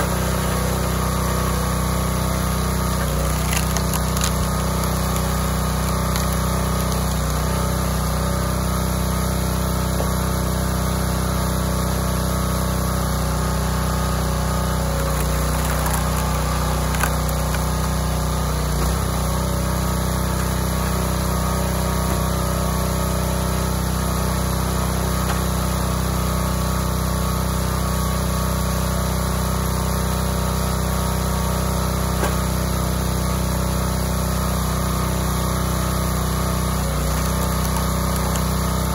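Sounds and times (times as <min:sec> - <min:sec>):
small gasoline engine running: 0:00.0 - 0:38.9.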